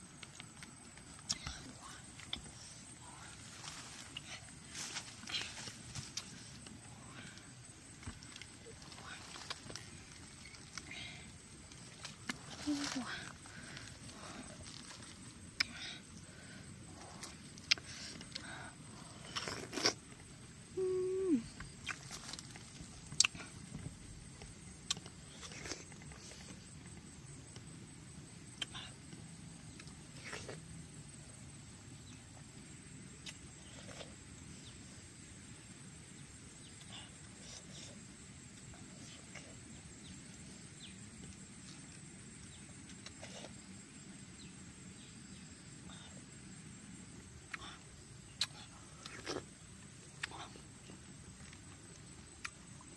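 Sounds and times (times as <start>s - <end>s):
low background noise: 0.0s - 52.9s
mouth sounds eating fruit: 16.9s - 23.7s, 28.2s - 30.9s, 41.2s - 44.2s, 47.2s - 52.9s
person humming: 20.8s - 21.6s.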